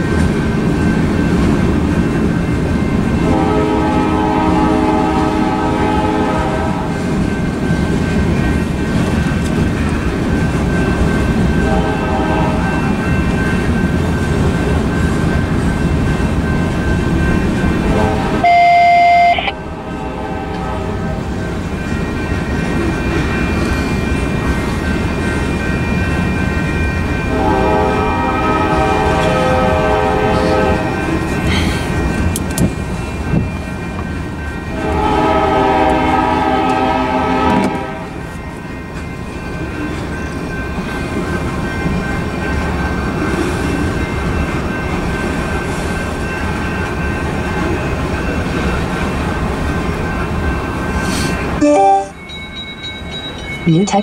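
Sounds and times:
freight train rolling rumble: 0:00.0 - 0:54.0
train horn: 0:03.2 - 0:07.0, 0:11.6 - 0:12.9, 0:17.8 - 0:21.4, 0:27.3 - 0:31.0, 0:34.7 - 0:38.2
high-pitched tones: 0:18.4 - 0:19.6, 0:51.6 - 0:54.0.

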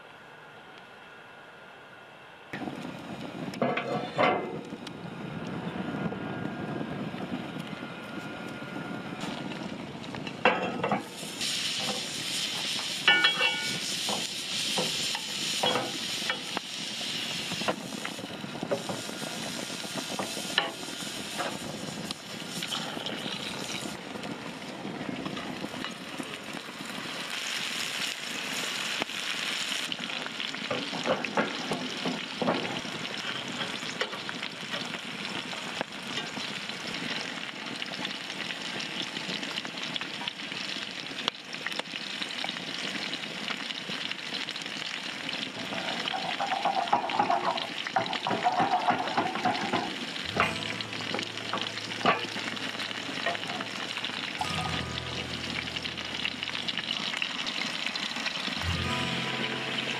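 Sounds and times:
meatballs sizzling in a pan: 0:10.6 - 0:59.9
utensils knocking against pots: 0:13.0 - 0:14.9, 0:15.6 - 0:16.5, 0:46.0 - 0:52.6.

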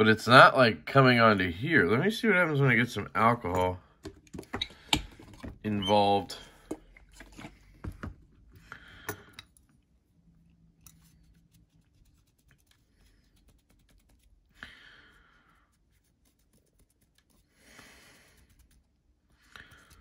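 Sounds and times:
cloth rubbing on metal: 0:10.9 - 0:14.6.

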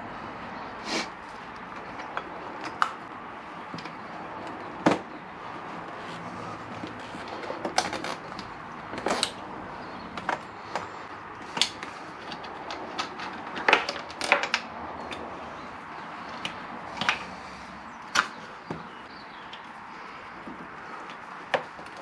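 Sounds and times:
clicks taps and light knocks: 0:18.1 - 0:22.0.

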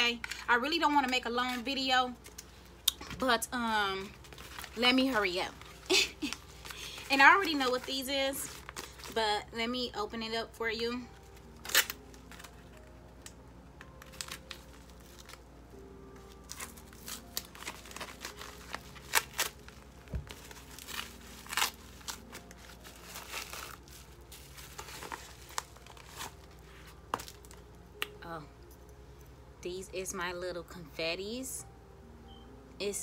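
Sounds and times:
plastic packaging crinkling: 0:04.0 - 0:09.2, 0:11.1 - 0:28.1
plastic tearing: 0:04.2 - 0:09.2, 0:11.2 - 0:15.5, 0:16.2 - 0:28.1.

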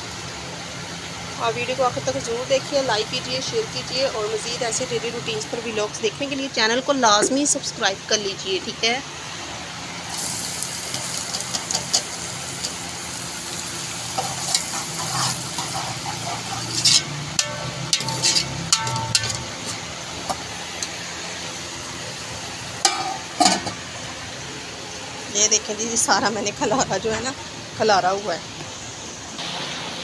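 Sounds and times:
onions sizzling in hot oil: 0:00.0 - 0:26.7
metal spoon scraping a pot: 0:14.2 - 0:19.8.

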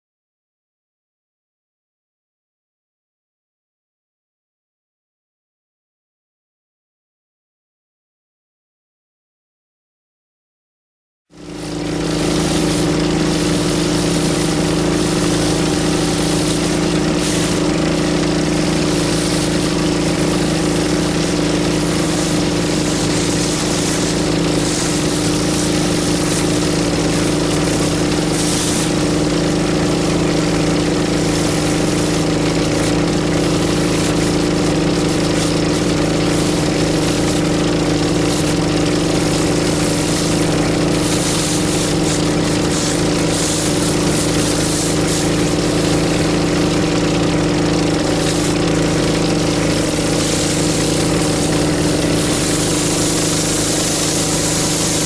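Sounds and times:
pressure washer engine running: 0:11.3 - 0:55.0
water spray hissing on concrete: 0:11.4 - 0:55.0.

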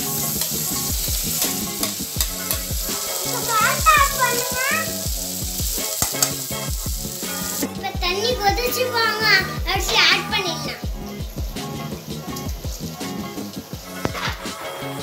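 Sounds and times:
spoon stirring in pan: 0:00.0 - 0:07.6
background music with low beat: 0:00.0 - 0:15.0
tomatoes sizzling in hot oil: 0:00.0 - 0:15.0.

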